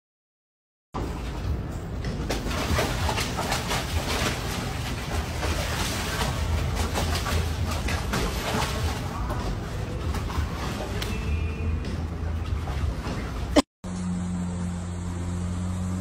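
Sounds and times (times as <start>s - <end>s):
dog splashing water: 1.0s - 13.6s.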